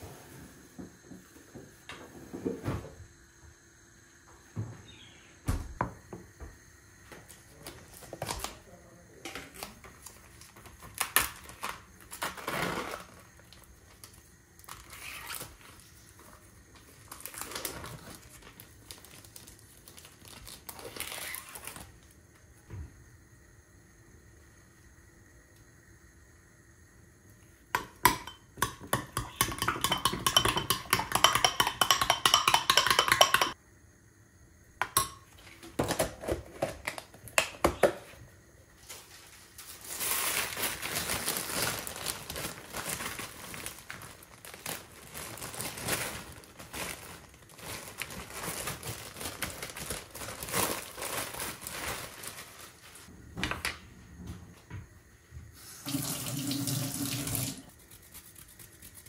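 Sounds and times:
spoon clinking glass bowl: 0:27.8 - 0:33.6, 0:34.8 - 0:35.3.

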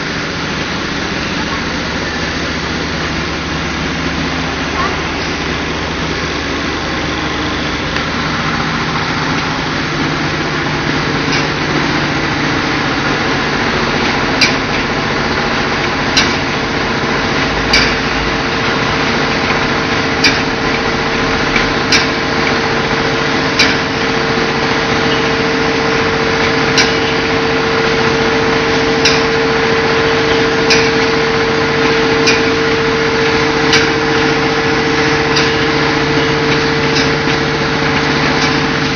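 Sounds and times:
machine humming: 0:00.0 - 0:38.9
sharp machine clicks: 0:13.8 - 0:16.7, 0:17.4 - 0:24.1, 0:26.4 - 0:27.5, 0:29.0 - 0:29.4, 0:30.1 - 0:31.2, 0:31.8 - 0:38.9.

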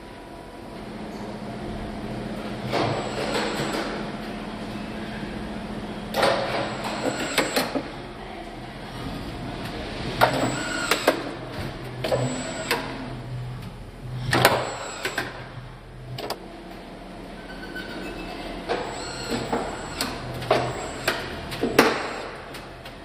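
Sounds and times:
mechanical clicks and clunks: 0:16.1 - 0:16.4.

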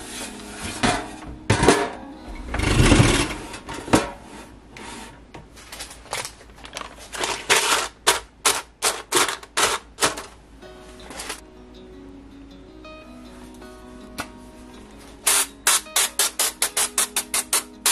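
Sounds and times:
soft background music: 0:00.0 - 0:04.5, 0:10.4 - 0:17.9.

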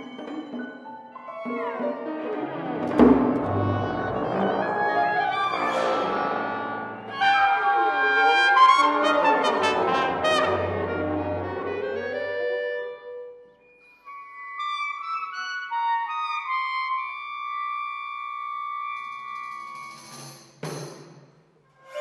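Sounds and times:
chamber ensemble music: 0:00.0 - 0:17.6.

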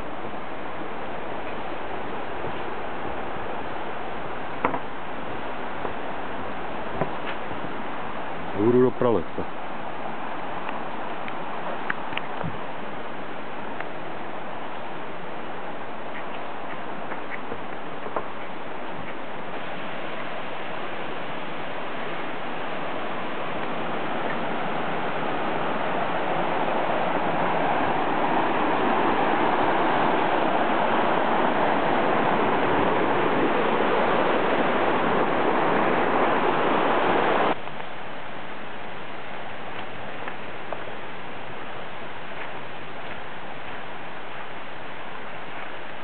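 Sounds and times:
stream rushing over stones: 0:00.0 - 0:46.0.

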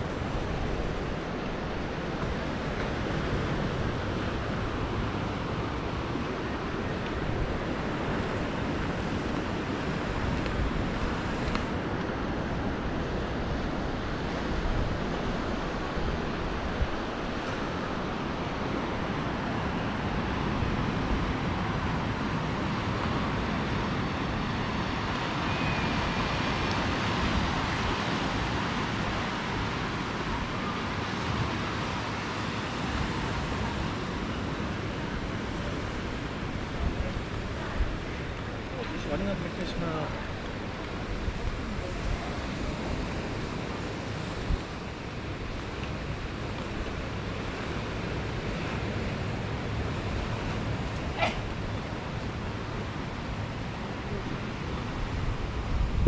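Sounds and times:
surf washing over rocks: 0:00.0 - 0:56.0
wind buffeting microphone: 0:00.0 - 0:56.0.

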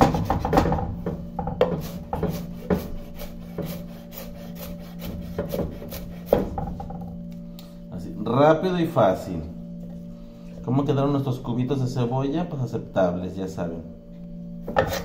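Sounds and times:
knife chopping on wooden board: 0:00.0 - 0:06.9, 0:14.7 - 0:15.0.

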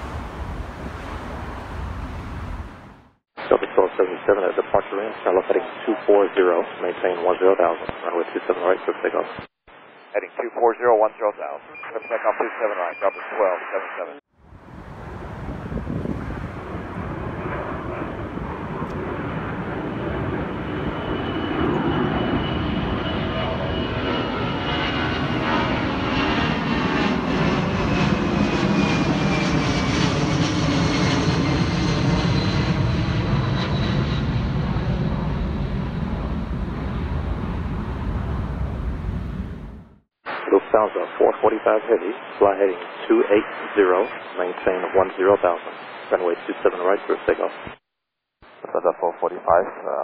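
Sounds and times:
jet airliner engine roar: 0:00.0 - 0:03.0, 0:14.5 - 0:39.9
jet engine high whine: 0:00.0 - 0:04.2, 0:13.8 - 0:40.0.

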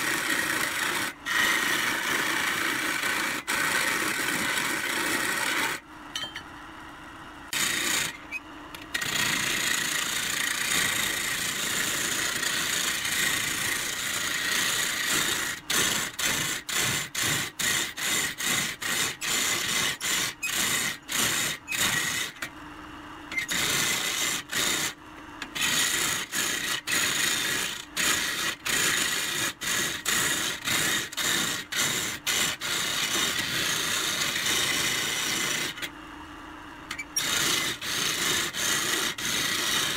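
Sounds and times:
wood lathe tool cutting wood: 0:00.0 - 0:05.8.

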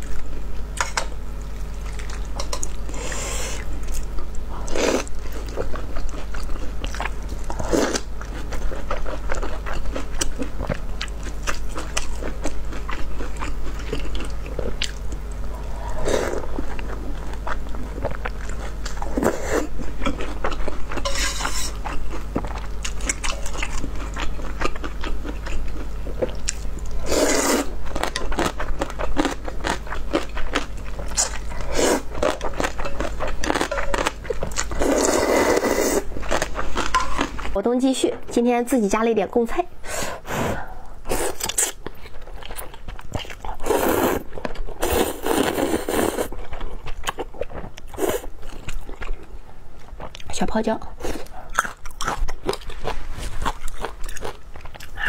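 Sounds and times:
steady low hum: 0:00.0 - 0:55.0
wet chewing: 0:00.8 - 0:37.6, 0:51.1 - 0:55.0
slurping noodles and soup: 0:27.0 - 0:27.7, 0:34.8 - 0:36.1, 0:43.6 - 0:46.3.

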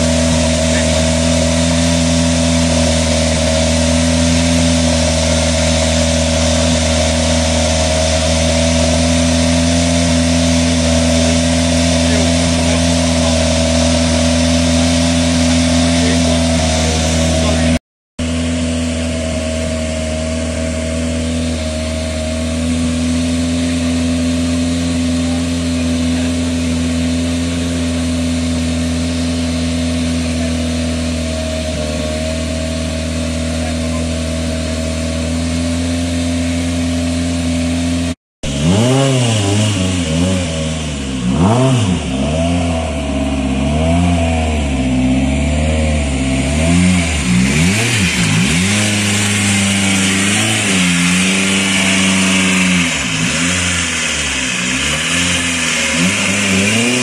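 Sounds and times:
car engine idling and revving: 0:00.0 - 0:57.0.

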